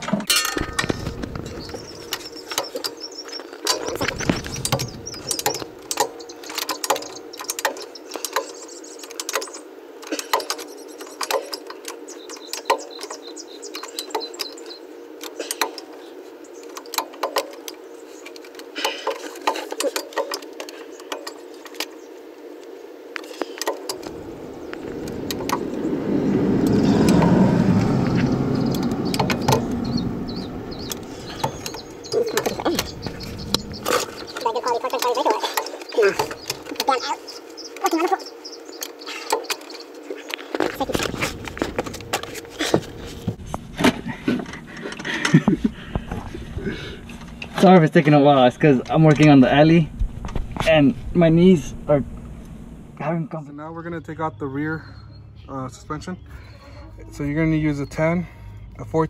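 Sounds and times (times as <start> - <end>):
passing vehicle: 23.9 - 34.4.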